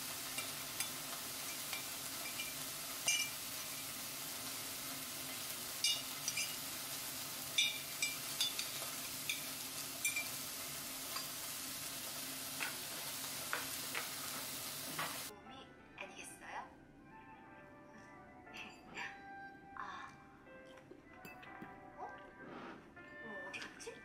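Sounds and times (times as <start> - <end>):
metal spoon clinking on dishes: 0.2 - 3.8, 5.8 - 6.7, 7.5 - 10.4, 11.1 - 11.5.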